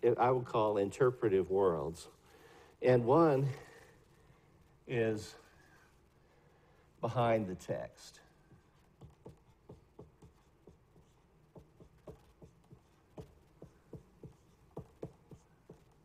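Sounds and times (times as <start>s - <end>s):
marker writing on whiteboard: 8.3s - 16.0s.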